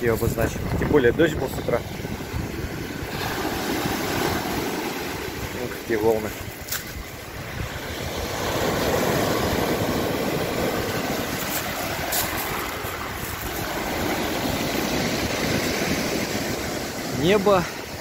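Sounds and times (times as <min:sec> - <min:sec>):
waves breaking on pebble beach: 0:00.0 - 0:18.0.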